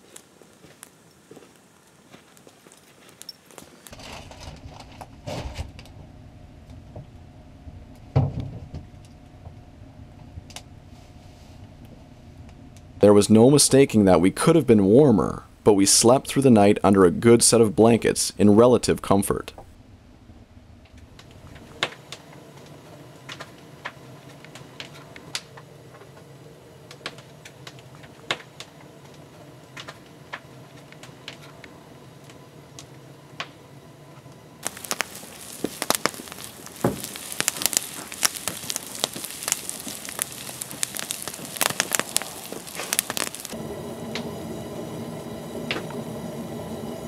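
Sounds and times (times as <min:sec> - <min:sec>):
faint ticks and crackles: 0:00.0 - 0:05.1, 0:26.8 - 0:43.6
campfire crackling and popping: 0:00.0 - 0:05.9, 0:20.9 - 0:47.0
potatoes sizzling in a skillet: 0:34.6 - 0:43.7.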